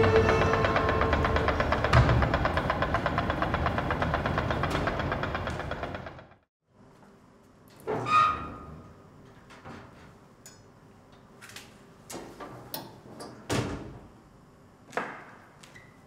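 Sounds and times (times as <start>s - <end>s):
dull knocks and thuds: 1.6s - 5.8s.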